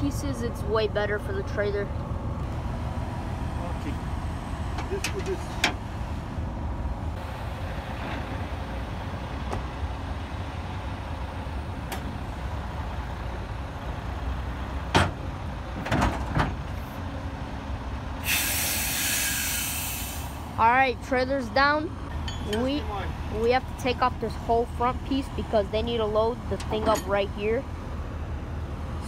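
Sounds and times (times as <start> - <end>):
diesel engine idling: 0.0 - 15.8
compressed air hiss: 18.2 - 20.5.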